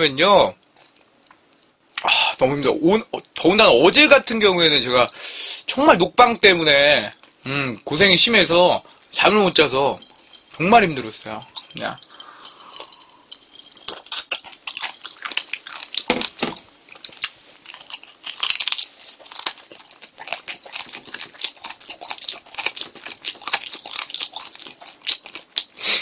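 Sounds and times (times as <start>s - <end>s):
chewing and crunching food: 6.2s - 26.0s.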